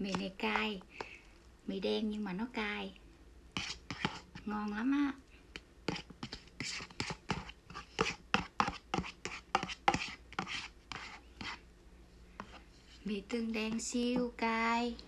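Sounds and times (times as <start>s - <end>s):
chopsticks scraping paper cup: 3.6s - 4.5s, 5.9s - 11.6s.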